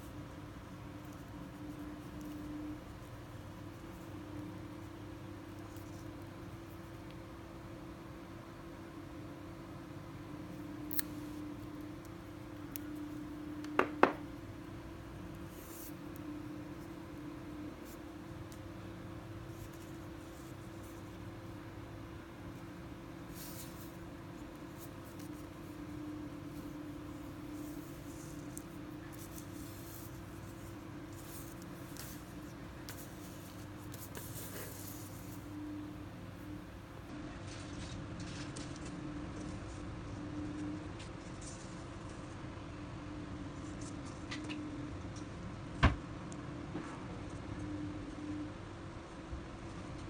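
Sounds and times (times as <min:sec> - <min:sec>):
fishing line rustling on paper: 0:00.0 - 0:07.3, 0:15.0 - 0:36.9.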